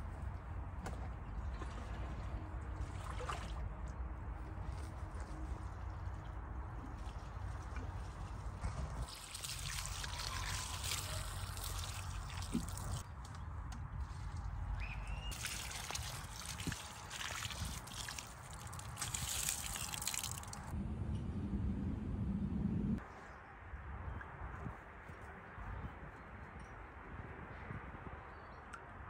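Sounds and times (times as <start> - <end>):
water pouring from watering can: 5.6 - 13.0, 15.3 - 20.7.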